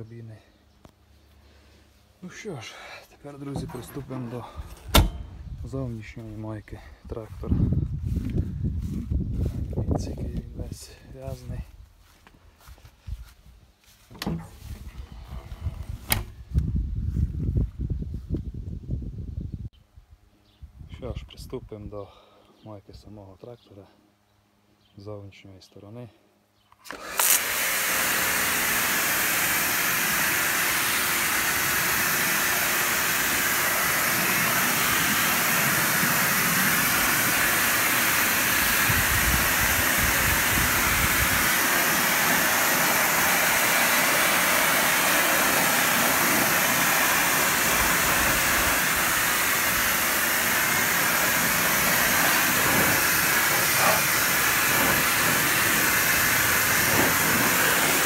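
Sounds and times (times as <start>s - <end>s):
pressure washer spraying metal: 27.2s - 58.0s.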